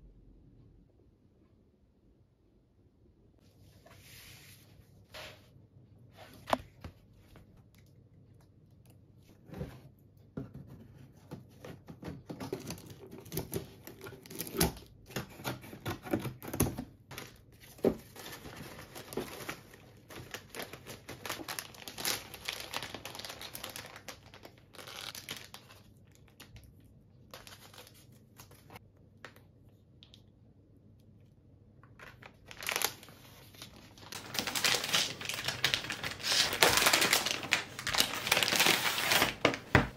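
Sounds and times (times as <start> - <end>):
plastic crinkling and rustling: 12.1 - 28.8, 31.9 - 39.9.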